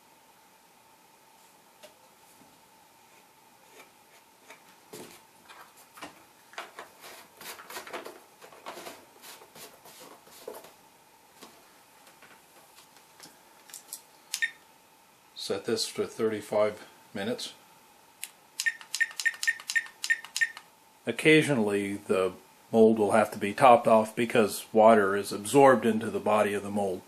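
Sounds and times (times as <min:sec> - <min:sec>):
faint high hum: 0:00.0 - 0:27.0.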